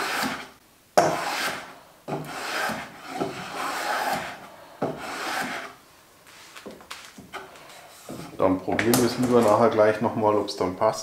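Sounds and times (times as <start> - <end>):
hand plane on wood: 0.0 - 5.8.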